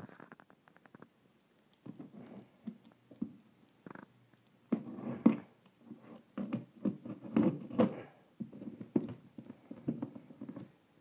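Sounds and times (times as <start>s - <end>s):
scrapes and knocks on cardboard: 4.7s - 10.7s.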